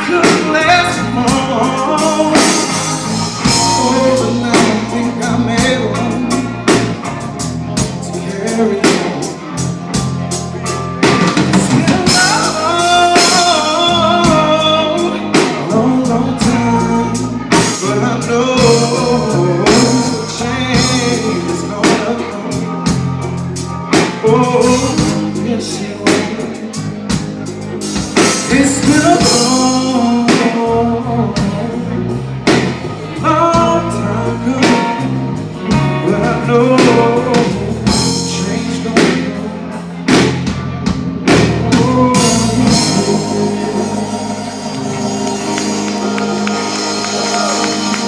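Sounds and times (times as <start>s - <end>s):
lead vocals singing: 0.0s - 6.7s, 11.4s - 22.7s, 41.6s - 48.0s
drum kit: 0.0s - 48.0s
soul band playing: 0.0s - 48.0s.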